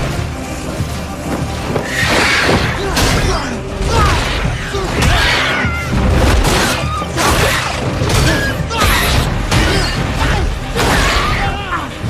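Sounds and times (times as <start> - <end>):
dramatic orchestral score: 0.0 - 12.0
creatures screeching: 1.8 - 3.2, 3.9 - 11.9.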